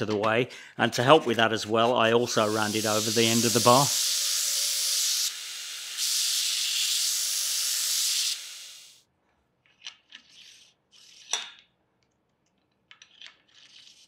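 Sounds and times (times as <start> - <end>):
belt grinder grinding metal: 2.3 - 8.9.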